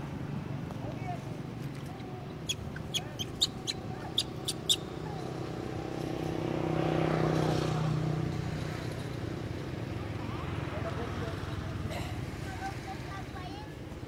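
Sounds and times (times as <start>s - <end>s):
vehicle driving past: 3.4s - 12.4s.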